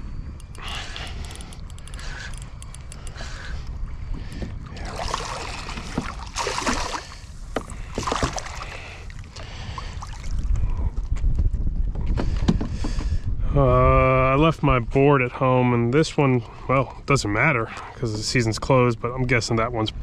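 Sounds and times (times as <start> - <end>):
low steady rumble: 0.0 - 11.9
water splashing at kayak: 4.5 - 10.6.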